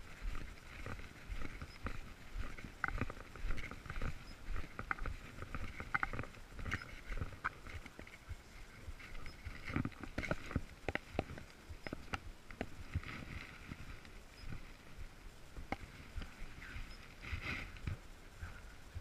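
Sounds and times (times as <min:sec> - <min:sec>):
footsteps on leaf-strewn path: 0:00.0 - 0:18.0
leaves brushing against clothing: 0:12.7 - 0:15.2, 0:15.8 - 0:18.3.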